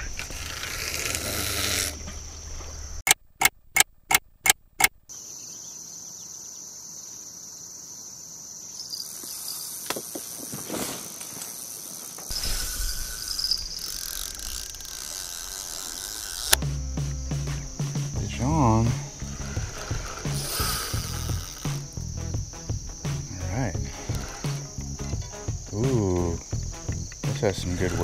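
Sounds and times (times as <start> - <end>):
crickets chirring: 0.0 - 3.5, 4.4 - 28.0
sharp clicks: 3.0 - 5.0, 12.2 - 16.7.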